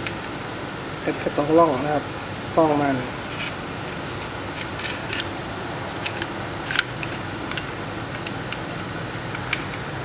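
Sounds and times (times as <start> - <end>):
steady fan-like hum: 0.0 - 10.0
pistol parts clicking and rattling: 4.6 - 5.4, 6.0 - 9.9.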